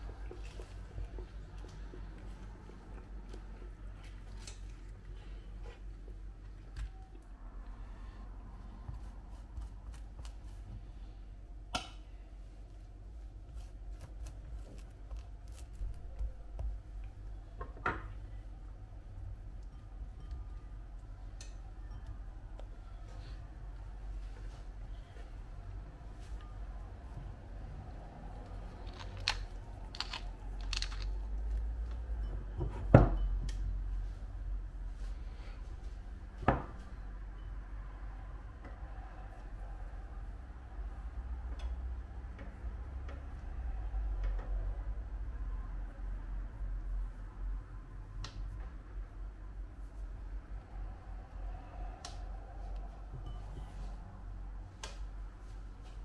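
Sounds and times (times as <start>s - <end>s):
low steady hum: 0.0s - 56.0s.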